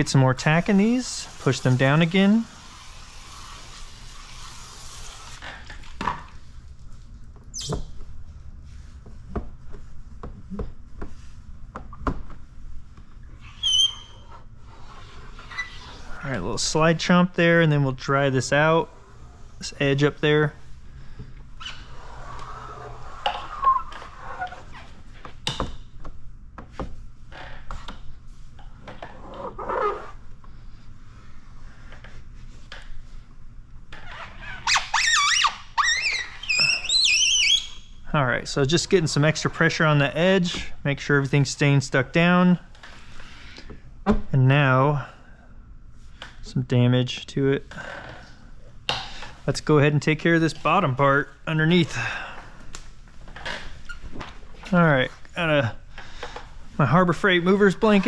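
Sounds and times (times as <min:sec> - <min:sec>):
squeegee scraping over film: 0:00.0 - 0:07.7, 0:29.0 - 0:30.2
short high squeak: 0:07.5 - 0:07.9, 0:13.4 - 0:14.3, 0:34.4 - 0:37.9.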